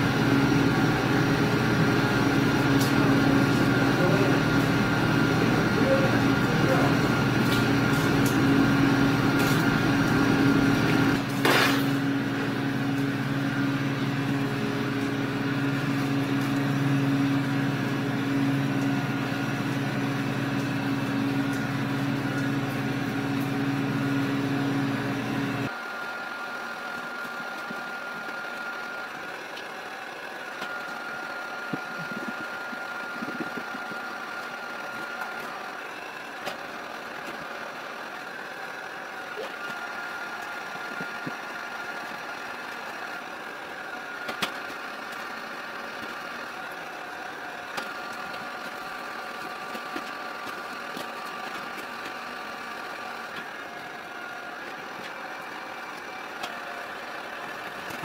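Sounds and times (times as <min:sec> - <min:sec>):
heat gun humming: 0:00.0 - 0:29.8.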